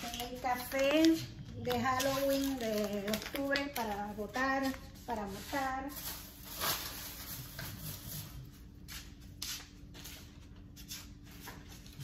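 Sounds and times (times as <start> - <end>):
food packages rustling: 0.0 - 8.4.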